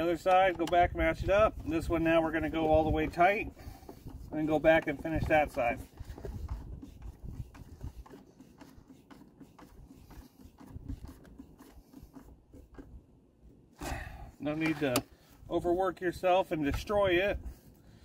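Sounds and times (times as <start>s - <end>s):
nut driver clicking and knocking: 0.2s - 0.9s.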